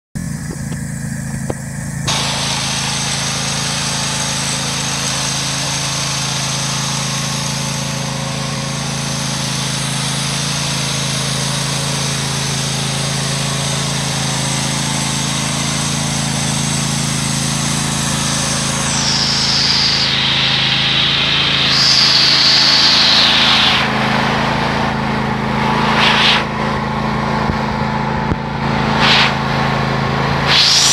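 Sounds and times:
riding lawn mower engine running: 0.2s - 30.9s
broad hiss: 2.1s - 8.0s, 17.5s - 24.2s, 25.8s - 26.6s, 28.9s - 29.5s, 30.4s - 30.9s.

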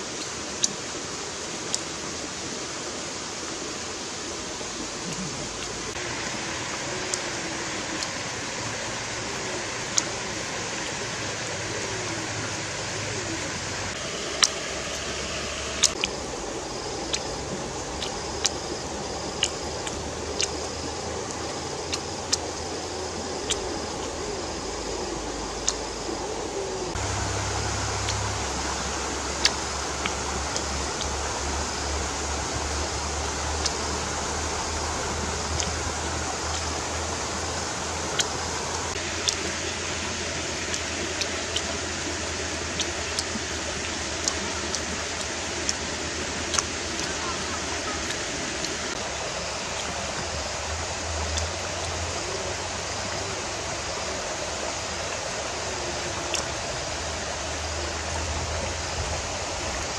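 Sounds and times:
steady hiss: 0.0s - 59.9s
steady rushing noise: 0.0s - 59.9s
chewing smacks and clicks: 15.8s - 16.2s.

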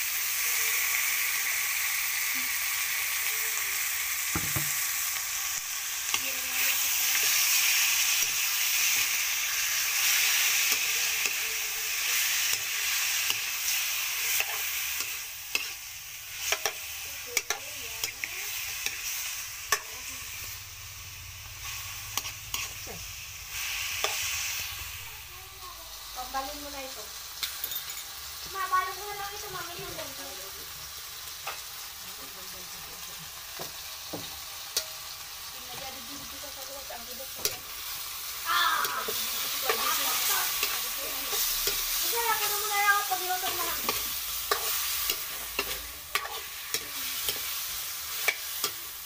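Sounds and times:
chicken sizzling in oil: 0.0s - 49.0s
metal spatula scraping wok: 4.7s - 20.6s, 21.5s - 25.0s, 33.6s - 49.0s.

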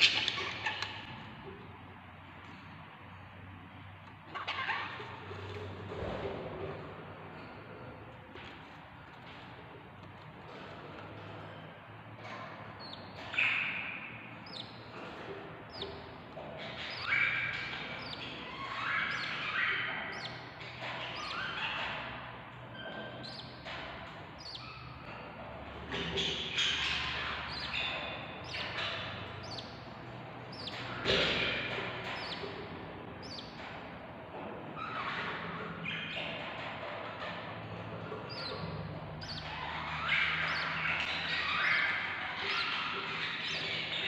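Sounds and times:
budgerigars chirping: 0.0s - 1.1s, 4.3s - 5.0s, 12.8s - 22.2s, 22.8s - 33.7s, 38.0s - 44.0s.

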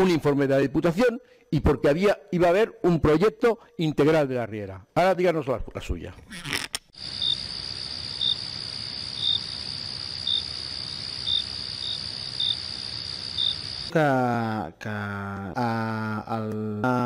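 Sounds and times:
crickets chirping: 7.0s - 14.0s
person chanting: 13.9s - 17.0s.

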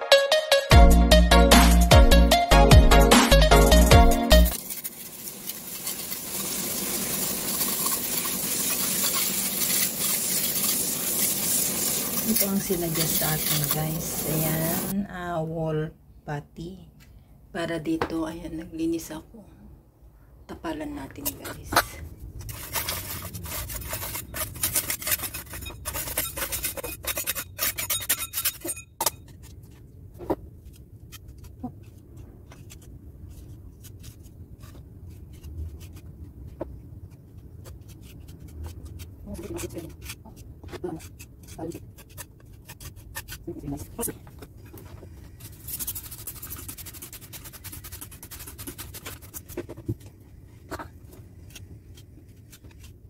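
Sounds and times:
steel scraper scraping paint: 4.5s - 14.9s, 21.2s - 28.8s, 37.6s - 43.8s, 45.4s - 49.8s.

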